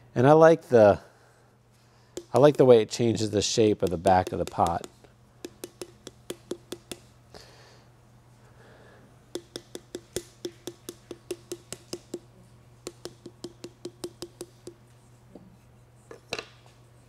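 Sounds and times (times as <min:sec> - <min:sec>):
paddle slapping soft clay: 0:03.6 - 0:07.1.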